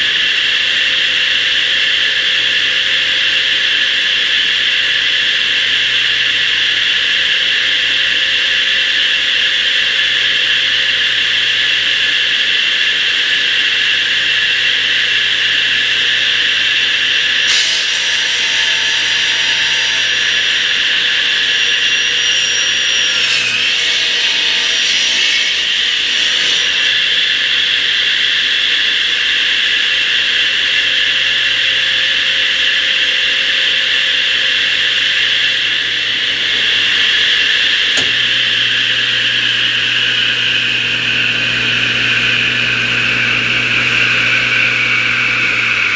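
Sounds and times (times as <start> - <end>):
radial arm saw whining: 10.4 - 30.7, 34.0 - 45.9
saw cutting wood: 14.7 - 28.6, 35.8 - 45.9.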